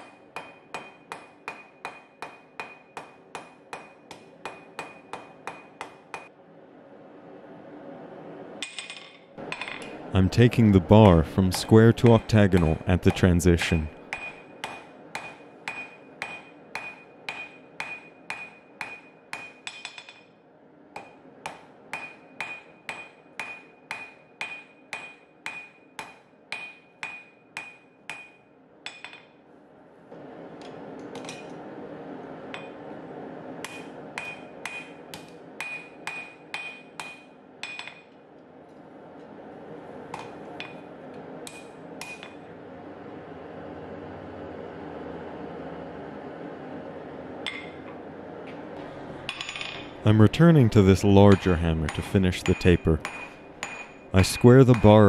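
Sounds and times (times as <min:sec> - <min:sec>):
hammer striking steel on anvil: 0:00.0 - 0:06.3, 0:14.1 - 0:20.3, 0:21.0 - 0:29.4, 0:32.5 - 0:32.8, 0:33.6 - 0:38.2, 0:40.1 - 0:42.4, 0:47.4 - 0:47.8, 0:51.3 - 0:55.0.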